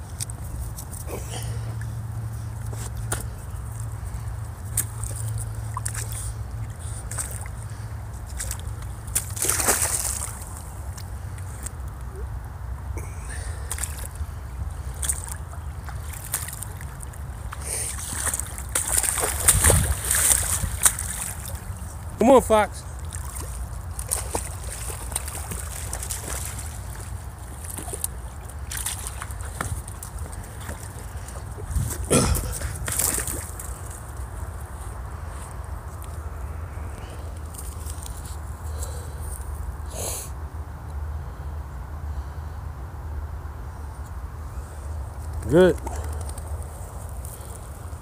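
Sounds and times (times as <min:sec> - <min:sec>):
creek water sloshing: 0:00.0 - 0:39.1
water splash: 0:08.3 - 0:10.7, 0:15.0 - 0:21.8, 0:23.0 - 0:31.4, 0:32.0 - 0:33.8.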